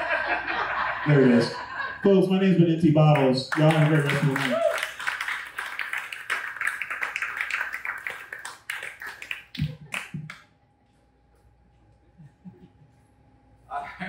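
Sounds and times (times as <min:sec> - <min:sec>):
small audience applauding: 0:03.0 - 0:10.5.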